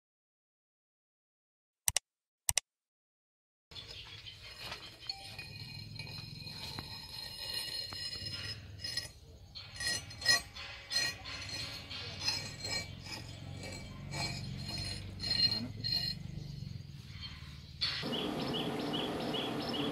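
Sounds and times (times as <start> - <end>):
axe head clinking on steel plate: 4.5 - 16.5.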